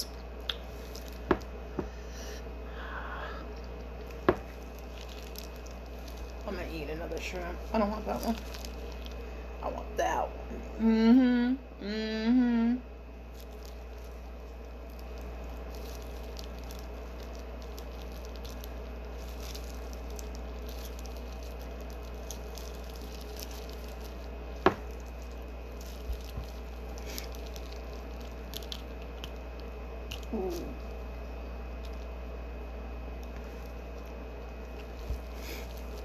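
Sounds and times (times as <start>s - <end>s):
steady low hum: 0.0s - 36.0s
shells crackling: 4.0s - 9.3s, 13.3s - 32.2s
wet squishing of shrimp: 4.1s - 6.6s, 7.6s - 9.3s, 13.3s - 32.2s.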